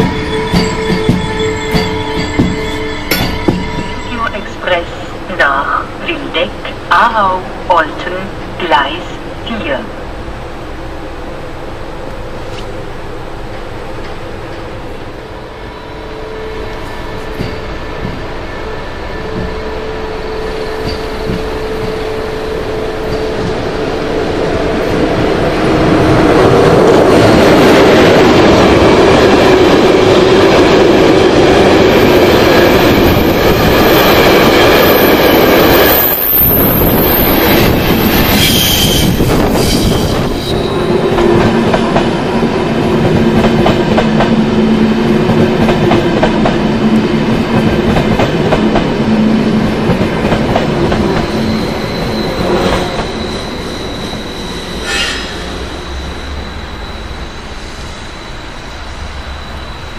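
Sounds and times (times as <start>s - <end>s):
train wheels clattering on rail joints: 0.0s - 4.1s, 17.1s - 19.8s, 20.5s - 23.8s
high wheel squeal: 0.0s - 5.2s, 31.9s - 41.3s, 51.0s - 59.9s
passenger train humming: 0.0s - 59.9s.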